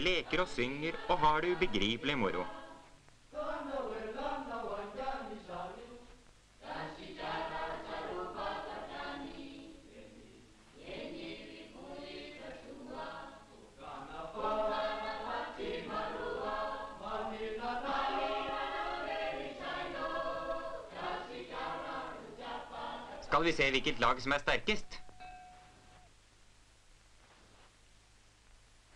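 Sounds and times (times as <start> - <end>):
children singing in chorus: 6.6 - 23.2.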